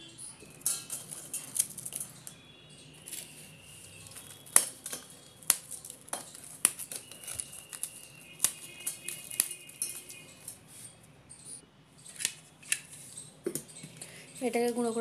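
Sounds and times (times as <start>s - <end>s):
toasted bread crunching: 0.4s - 2.4s, 3.0s - 10.7s
hard pieces clicking on steel: 0.5s - 2.4s, 3.0s - 10.6s.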